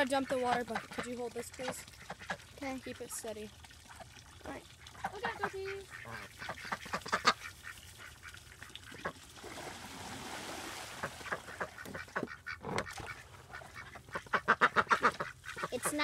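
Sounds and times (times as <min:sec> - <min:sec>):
ducks quacking and honking: 0:00.0 - 0:02.5, 0:04.8 - 0:09.2, 0:11.0 - 0:16.0
water gushing and splashing: 0:00.0 - 0:16.0.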